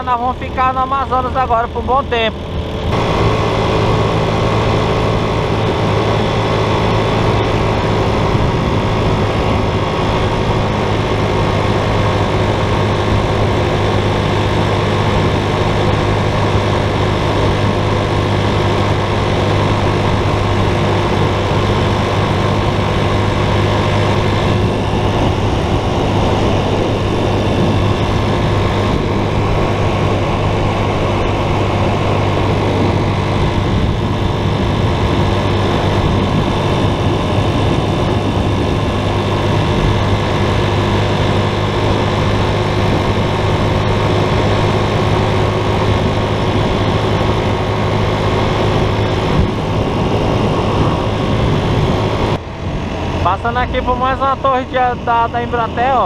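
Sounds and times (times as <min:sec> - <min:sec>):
road noise rushing: 0:00.0 - 0:56.0
vehicle engine running: 0:00.0 - 0:56.0.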